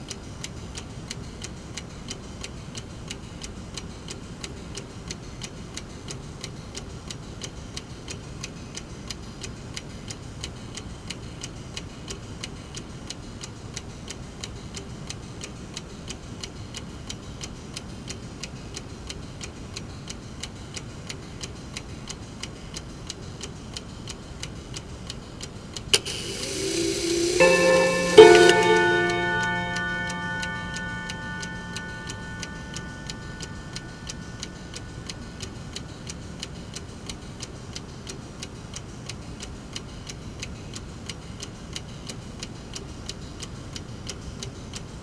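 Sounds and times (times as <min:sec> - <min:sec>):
clock ticking: 0:26.0 - 0:36.5.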